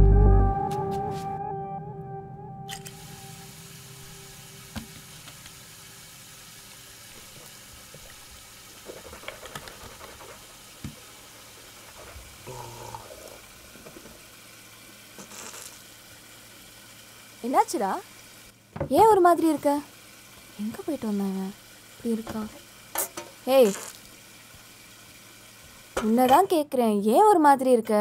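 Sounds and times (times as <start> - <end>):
tap water running: 2.7 - 26.6.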